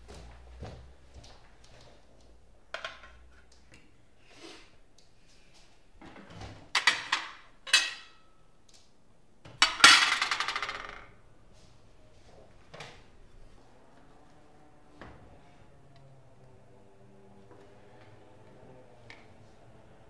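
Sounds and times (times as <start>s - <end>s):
dishes clattering: 6.7s - 8.2s, 9.6s - 11.0s
dishes and cutlery clinking: 6.8s - 8.2s.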